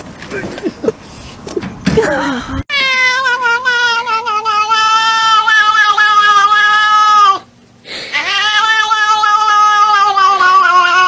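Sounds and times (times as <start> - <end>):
cat yowling: 2.7 - 7.5, 8.1 - 11.0.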